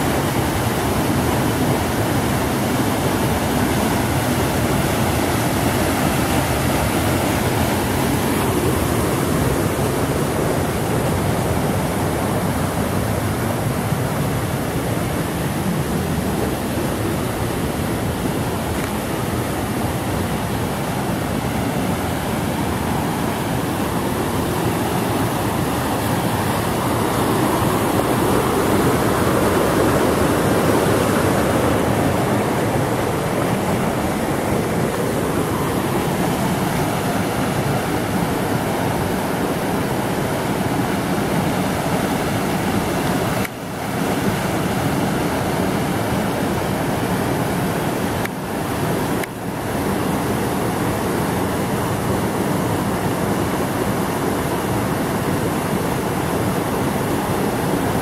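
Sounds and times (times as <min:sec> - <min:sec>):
river rushing over rocks: 0:00.0 - 0:58.0.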